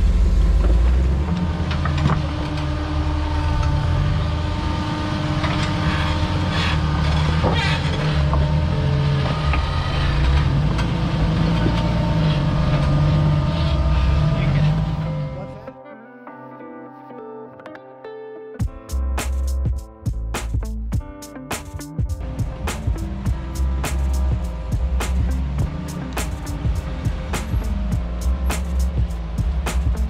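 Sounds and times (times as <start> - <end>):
car engine running at low revs: 0.0 - 15.6, 22.0 - 30.0.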